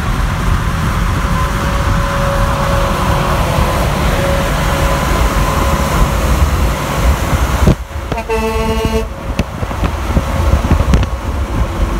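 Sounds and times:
highway road and wind noise: 0:00.0 - 0:11.9
truck air horn blast: 0:08.1 - 0:09.2.

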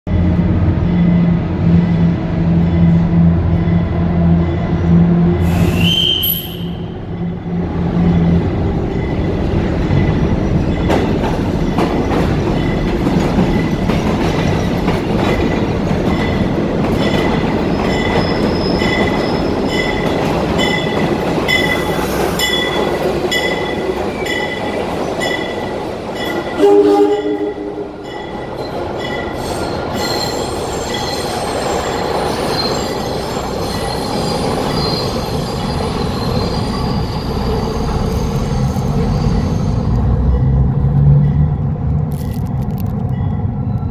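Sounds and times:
high-pitched wheel squeal: 0:05.4 - 0:07.0, 0:17.7 - 0:19.5, 0:29.4 - 0:40.0
train horn blast: 0:26.3 - 0:28.0.

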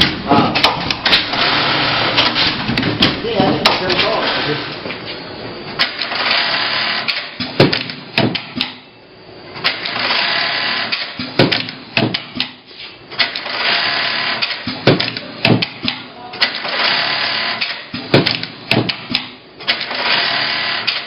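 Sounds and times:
sewing machine running: 0:01.0 - 0:02.4, 0:05.8 - 0:07.2, 0:09.7 - 0:11.1, 0:13.2 - 0:14.6, 0:16.4 - 0:17.8, 0:19.7 - 0:21.0.

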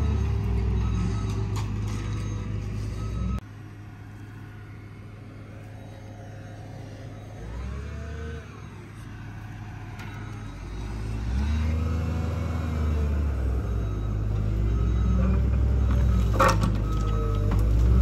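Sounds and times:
heavy machine engine revving: 0:06.6 - 0:18.0.

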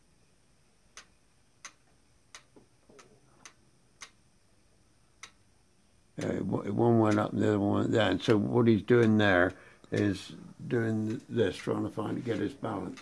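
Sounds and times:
clockwork mechanism clicking: 0:00.9 - 0:04.2, 0:06.2 - 0:13.0.

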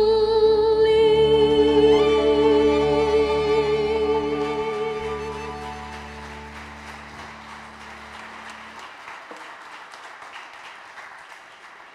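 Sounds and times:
held music chord: 0:00.8 - 0:08.9
audience applauding: 0:04.2 - 0:11.9.

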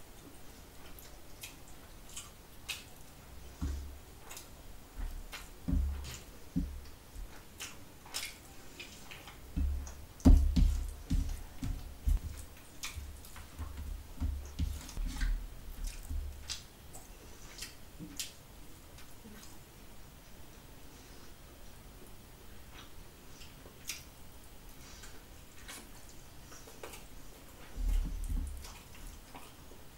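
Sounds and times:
wet chewing: 0:00.2 - 0:18.4, 0:24.7 - 0:29.8.

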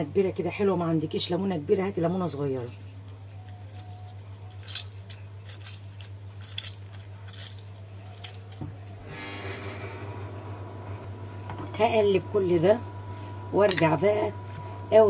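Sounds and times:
steady low hum: 0:00.0 - 0:15.0
lemon squishing and dripping: 0:03.1 - 0:09.0.

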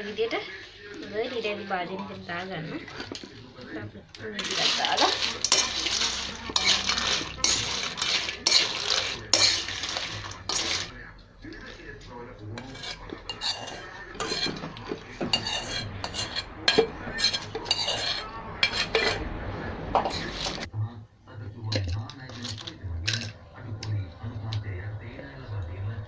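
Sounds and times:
metal spoon scraping metal bowl: 0:04.4 - 0:11.0, 0:12.5 - 0:20.7.

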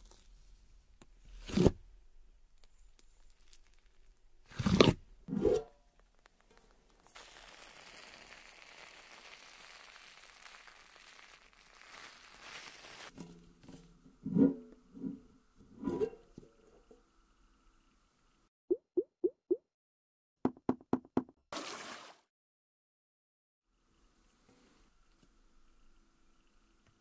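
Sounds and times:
slime squishing and crackling: 0:06.0 - 0:13.2
slime hissing rustle: 0:06.9 - 0:13.2.

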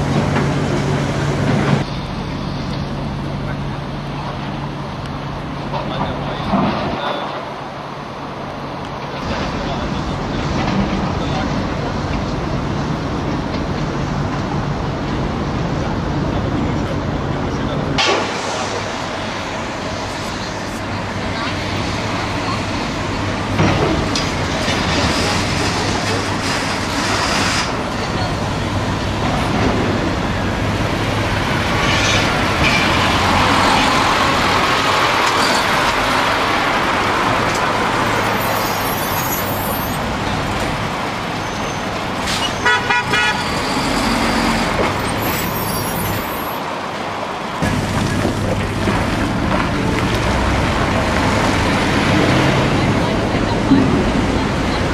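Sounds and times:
dump truck diesel engine: 0:00.0 - 0:54.9
street noise: 0:00.0 - 0:54.9
horn tooting: 0:42.4 - 0:44.7.

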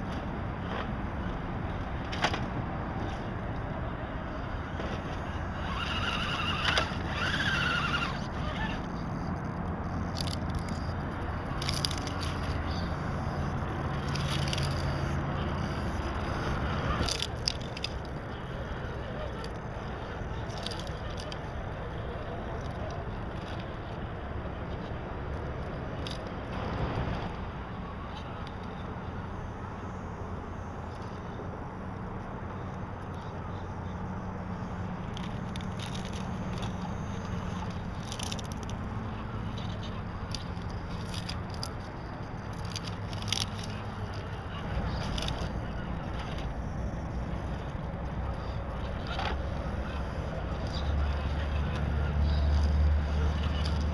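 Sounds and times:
rc truck mechanical running: 0:00.0 - 0:53.9
electric motor humming: 0:04.3 - 0:24.0
sharp clicks and scrapes: 0:04.7 - 0:12.9, 0:13.9 - 0:21.6, 0:35.0 - 0:53.9.

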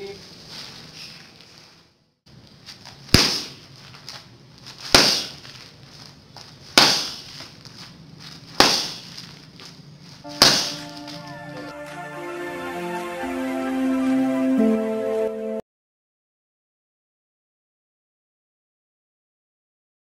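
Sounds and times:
open-hand strikes on focus pad: 0:03.1 - 0:03.6, 0:06.8 - 0:07.2, 0:08.6 - 0:09.0, 0:10.3 - 0:11.7
music: 0:10.3 - 0:15.6.

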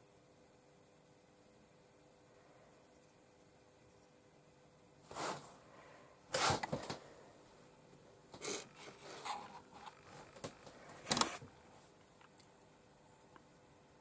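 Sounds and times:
brush scraping on paper: 0:05.1 - 0:05.6, 0:08.4 - 0:11.0.

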